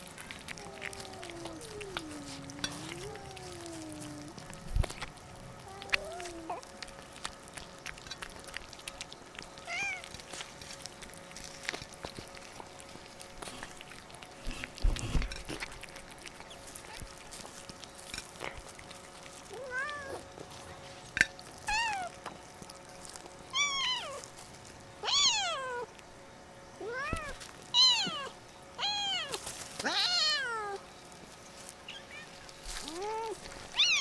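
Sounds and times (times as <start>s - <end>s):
cats meowing: 0.4s - 4.6s, 5.6s - 6.7s, 9.6s - 10.1s, 19.5s - 20.4s, 21.7s - 22.2s, 23.5s - 24.3s, 25.0s - 25.9s, 26.8s - 30.8s, 31.8s - 34.0s.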